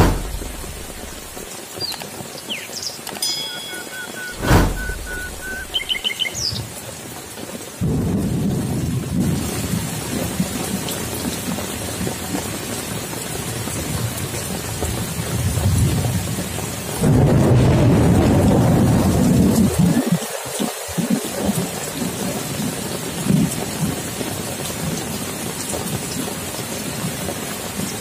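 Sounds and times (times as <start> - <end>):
loud rushing noise: 0.0 - 1.5, 4.2 - 6.0
thunder rumbling: 0.0 - 1.5, 4.3 - 6.0, 17.0 - 19.8
rain falling: 0.0 - 28.0.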